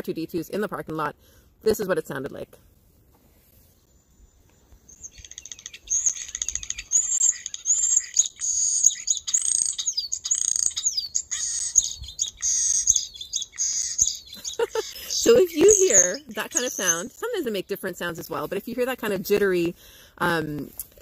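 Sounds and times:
starling song: 11.1s - 18.0s.

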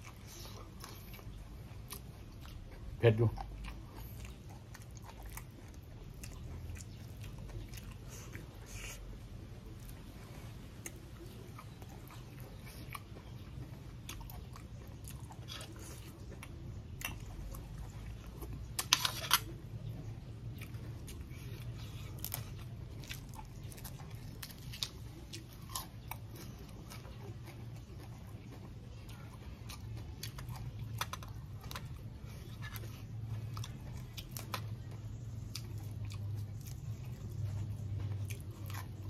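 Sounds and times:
close chewing and biting: 0.0s - 39.0s
crunching: 9.7s - 39.0s.

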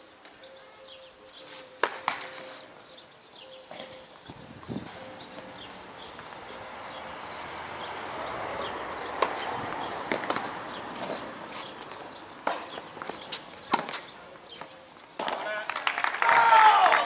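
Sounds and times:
tennis ball hits: 8.5s - 15.4s.

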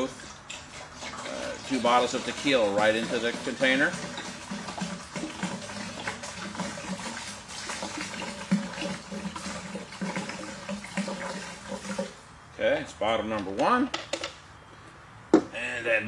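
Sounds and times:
liquid glugging from bottle: 0.0s - 12.2s.

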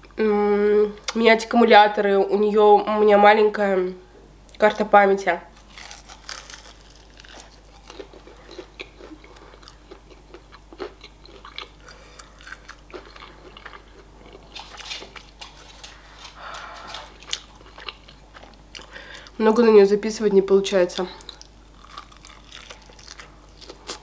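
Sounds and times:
person chewing crispy chicken: 5.6s - 19.4s, 21.2s - 24.0s.

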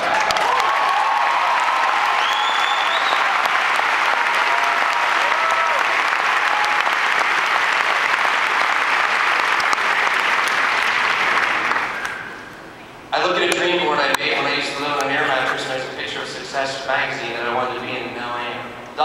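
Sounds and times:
audience applauding: 0.0s - 12.5s
people cheering: 0.0s - 12.5s
whistle: 2.2s - 3.3s, 12.0s - 12.5s.

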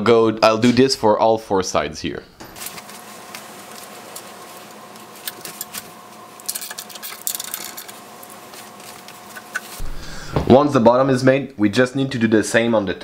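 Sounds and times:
nuts and bolts clicking and rattling: 5.2s - 9.8s.

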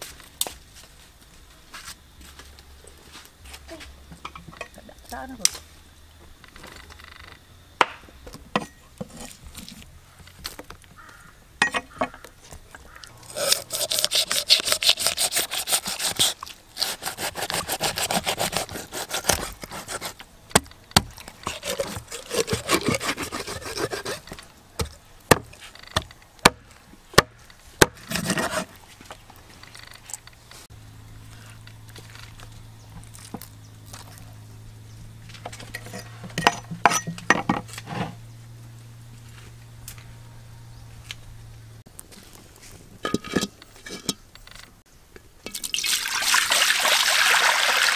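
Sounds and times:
cleaver rasping through fish: 13.1s - 20.2s, 21.1s - 24.3s.

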